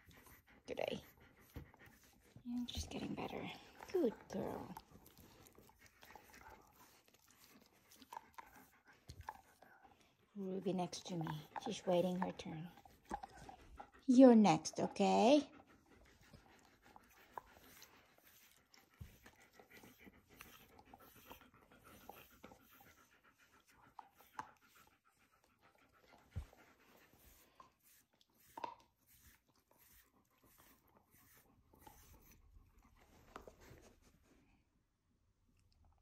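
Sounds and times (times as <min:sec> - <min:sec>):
puppy panting: 0:00.0 - 0:34.4
brush strokes through fur: 0:27.1 - 0:32.4.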